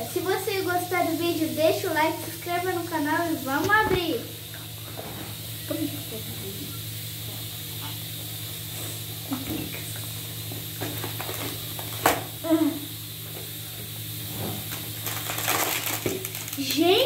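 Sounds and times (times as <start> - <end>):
steady low hum: 0.0 - 17.0
plastic wrap crinkling: 10.8 - 12.1, 14.7 - 17.0.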